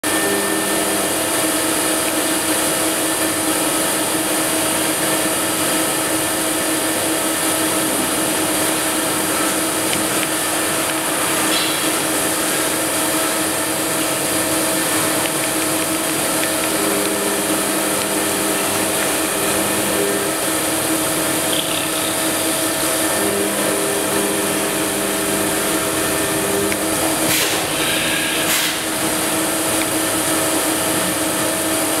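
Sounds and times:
milling machine whine: 0.0s - 32.0s
cutting and coolant spray hiss: 24.0s - 31.9s.

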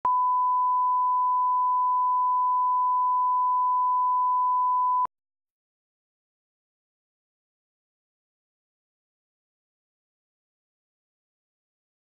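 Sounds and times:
steady reference tone beep: 0.1s - 5.1s.

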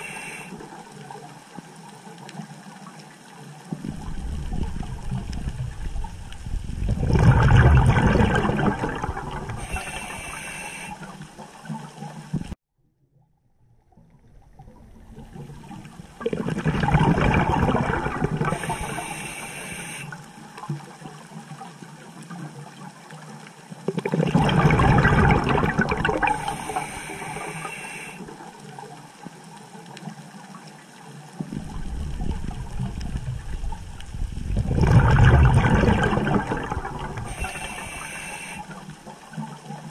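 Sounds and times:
exhaled bubbles rushing underwater: 0.0s - 12.6s, 13.7s - 21.7s, 23.8s - 29.0s, 31.3s - 39.9s
regulator hissing: 18.6s - 20.1s, 37.3s - 38.8s.

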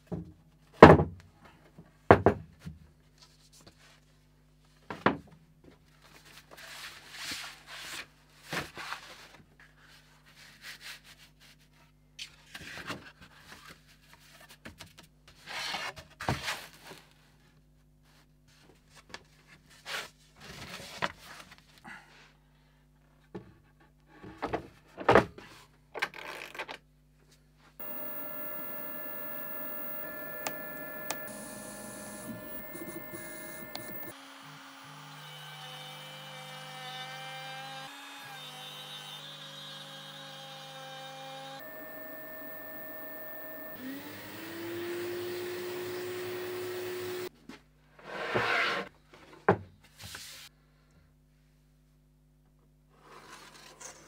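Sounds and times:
steady machine hum: 27.8s - 34.1s, 41.6s - 47.3s.

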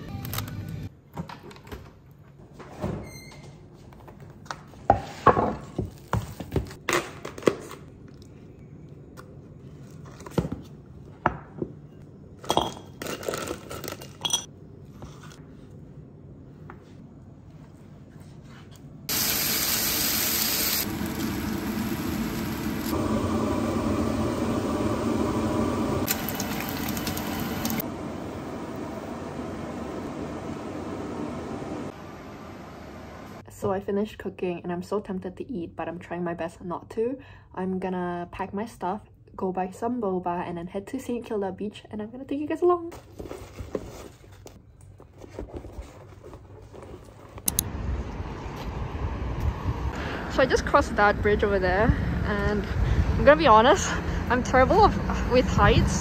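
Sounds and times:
cooking hiss on stove: 19.1s - 27.8s.

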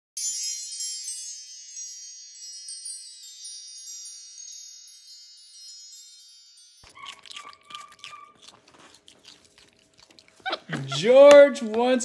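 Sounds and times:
wind chimes ringing: 0.2s - 7.1s.

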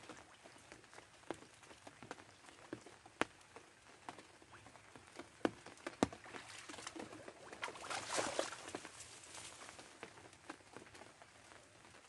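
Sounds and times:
footsteps wading through water: 0.0s - 11.6s
water splashes and drips: 0.0s - 12.0s
tall grass rustling: 6.2s - 10.7s.

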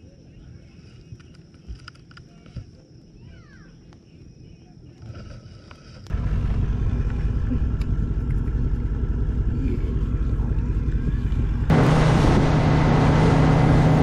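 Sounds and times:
outboard motor humming: 5.1s - 14.0s
low rumble: 6.1s - 14.0s.

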